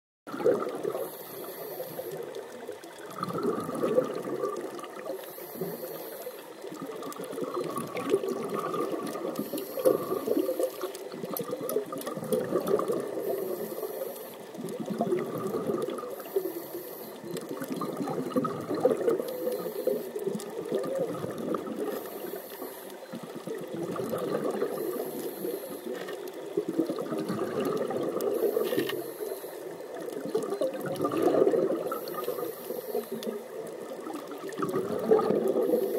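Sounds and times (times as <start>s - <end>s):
exhaled bubbles gushing: 0.3s - 5.8s, 6.4s - 35.9s
regulator inhale hiss: 0.9s - 2.3s, 5.1s - 6.6s, 9.3s - 10.9s, 13.1s - 14.5s, 16.1s - 17.4s, 19.2s - 20.3s, 21.8s - 23.1s, 24.7s - 26.2s, 28.3s - 29.9s, 31.9s - 33.4s, 35.6s - 35.9s.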